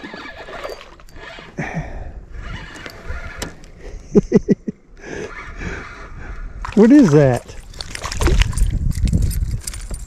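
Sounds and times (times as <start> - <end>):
fishing reel cranking: 0.0 - 1.8
water splashing: 6.6 - 9.0.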